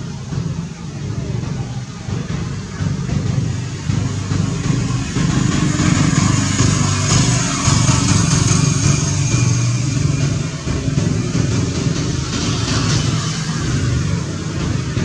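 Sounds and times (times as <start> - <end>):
engine droning: 0.0 - 15.0
hiss: 0.0 - 15.0.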